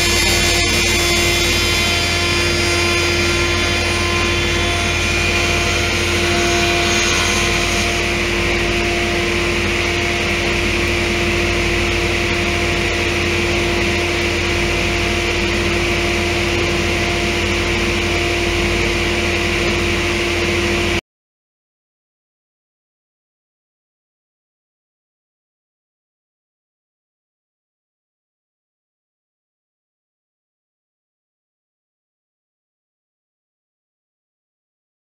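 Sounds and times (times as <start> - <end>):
milling machine humming and hissing: 0.0 - 21.0.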